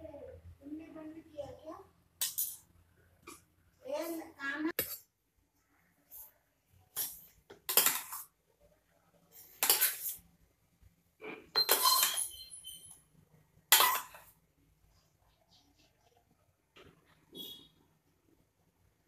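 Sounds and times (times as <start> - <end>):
metal spoon scraping a steel bowl: 11.6 - 13.0.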